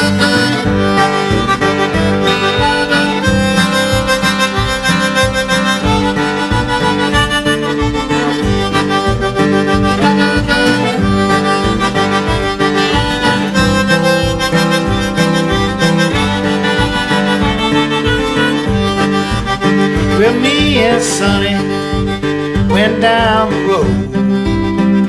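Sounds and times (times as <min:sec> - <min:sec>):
blues harmonica: 0:00.0 - 0:25.0
rhythmic acoustic guitar: 0:00.0 - 0:25.0.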